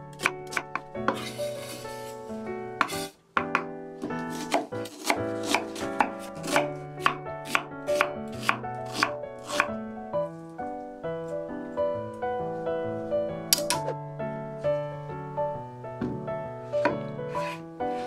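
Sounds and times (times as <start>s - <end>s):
background music: 0.0s - 18.0s
knife chopping on wooden board: 0.2s - 1.4s, 2.8s - 9.7s.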